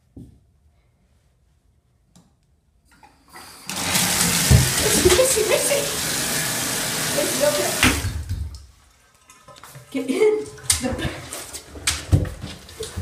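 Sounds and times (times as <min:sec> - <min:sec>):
water gushing from tap into tub: 0:03.3 - 0:11.5.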